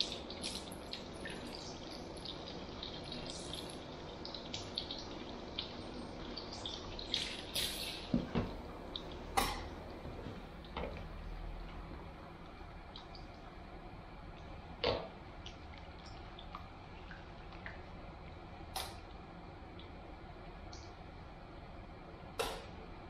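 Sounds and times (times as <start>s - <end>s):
water dripping and splashing: 0.0s - 10.0s, 12.4s - 13.6s, 14.3s - 20.0s.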